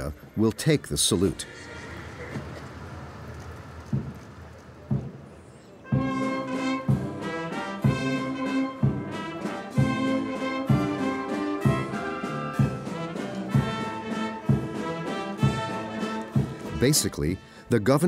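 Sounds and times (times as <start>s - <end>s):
drum beat: 3.9s - 4.2s, 4.9s - 5.2s, 6.0s - 17.1s
military brass band playing: 5.9s - 17.8s.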